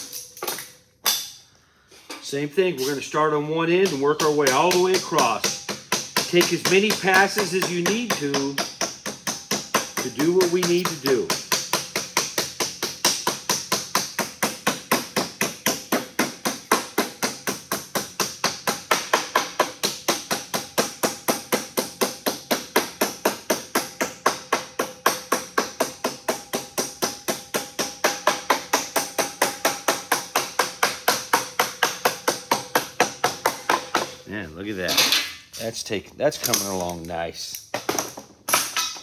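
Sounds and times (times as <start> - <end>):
rubber mallet tapping sheet metal: 3.6 - 34.3.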